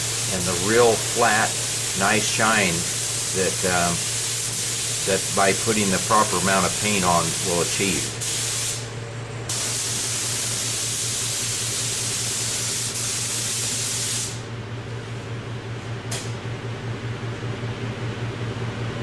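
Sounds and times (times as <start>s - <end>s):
paint spray gun hissing: 0.0s - 8.9s, 9.5s - 14.4s
steady low hum: 0.0s - 19.0s.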